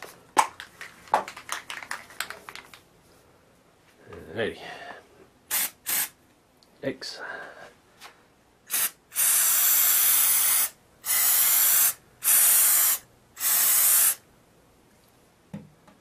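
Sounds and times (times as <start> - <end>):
aerosol can spraying: 5.5 - 6.2, 8.7 - 14.2.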